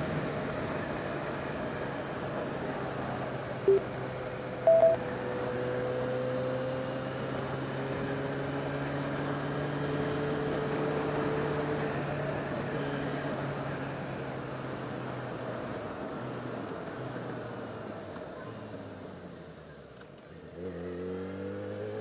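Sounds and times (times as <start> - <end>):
wind: 0.0 - 22.0
short electronic beeps: 3.7 - 3.9, 4.7 - 5.0.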